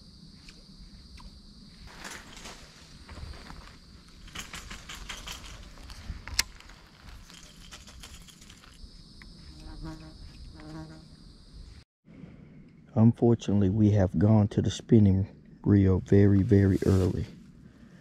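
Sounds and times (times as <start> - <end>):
high insect buzz: 0.0 - 11.8.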